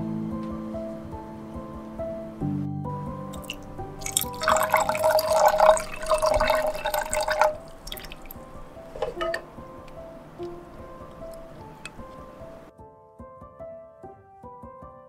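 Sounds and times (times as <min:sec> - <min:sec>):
background music: 0:00.0 - 0:15.0
water pouring into a pan: 0:03.4 - 0:08.6.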